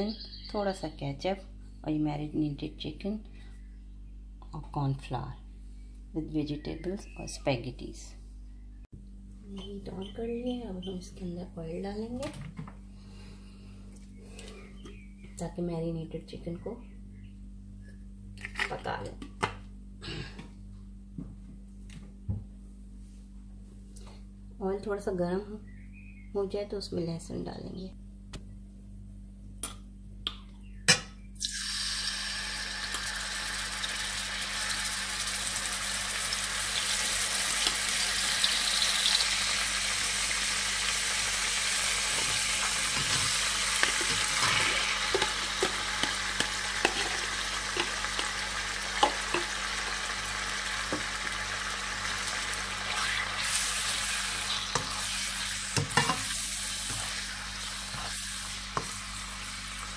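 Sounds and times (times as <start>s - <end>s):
oil sizzling in a pan: 31.4s - 59.9s
spatula clicking and scraping: 43.8s - 48.4s.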